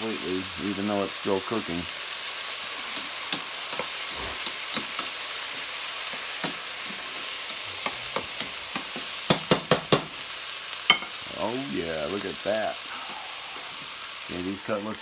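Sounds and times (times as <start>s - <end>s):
chicken frying in oil: 0.0s - 15.0s
vegetables sauteing: 0.0s - 15.0s
metal tongs clacking on pan: 2.9s - 5.2s, 7.3s - 10.1s.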